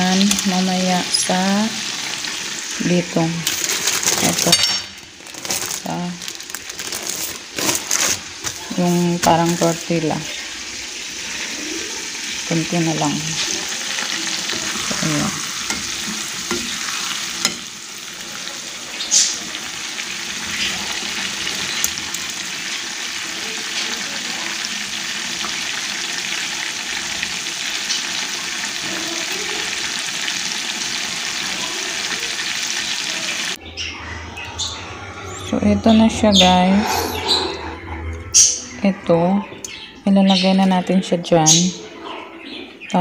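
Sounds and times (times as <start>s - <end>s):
chicken deep-frying in oil: 0.0s - 33.9s.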